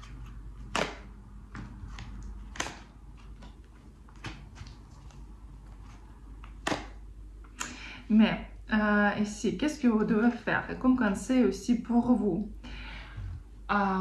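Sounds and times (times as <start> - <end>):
cards snapping and tapping: 0.0 - 5.3, 6.3 - 7.6.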